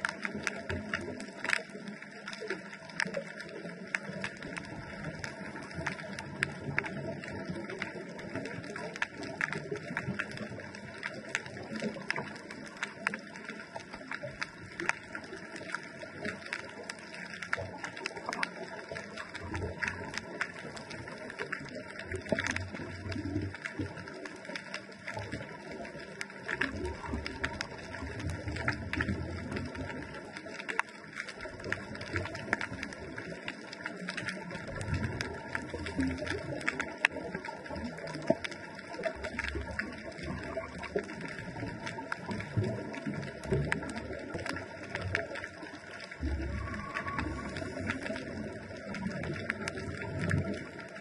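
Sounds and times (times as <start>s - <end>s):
underwater crackle of small clicks: 0.0s - 51.0s
exhaled breath bubbling: 46.1s - 50.7s.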